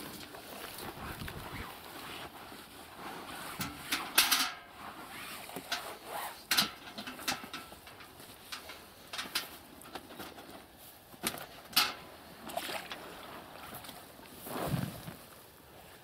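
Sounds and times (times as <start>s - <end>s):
water sloshing and splashing: 11.3s - 14.2s.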